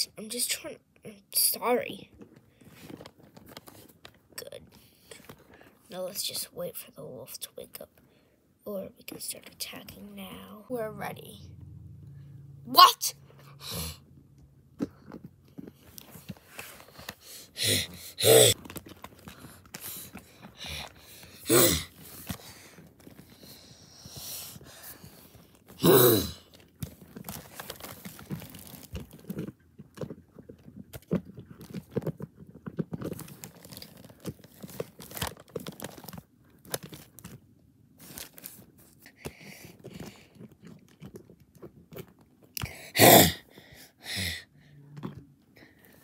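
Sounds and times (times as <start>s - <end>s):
person crying out: 17.6s - 18.6s, 21.5s - 21.9s.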